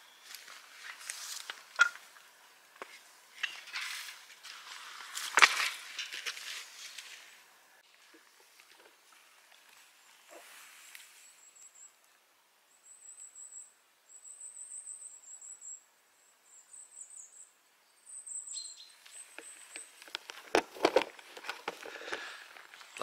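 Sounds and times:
bird song warbling: 0.0 - 0.4, 12.7 - 20.0
footsteps crunching on grass and twigs: 0.1 - 11.3, 19.1 - 23.0.

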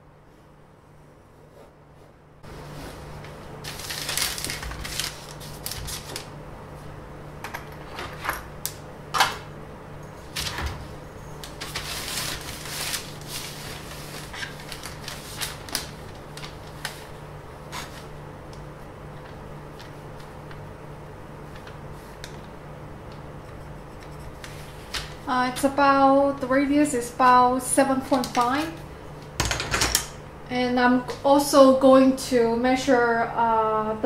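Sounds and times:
steady low hum: 0.0 - 34.0
paper shifting: 2.6 - 6.3, 11.4 - 18.1
pencil drawing on paper: 23.4 - 24.7.

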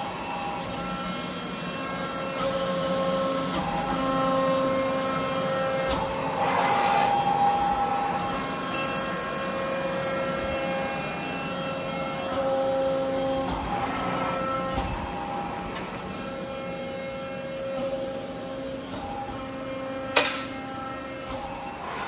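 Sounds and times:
sharp metal clank: 20.2 - 20.6.

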